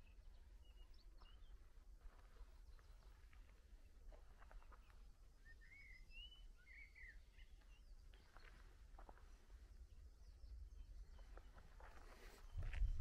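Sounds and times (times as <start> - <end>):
bird chirps: 4.6 - 8.6.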